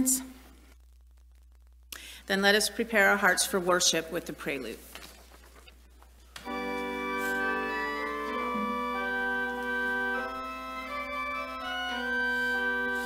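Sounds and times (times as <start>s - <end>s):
church organ playing chords: 6.4s - 13.0s.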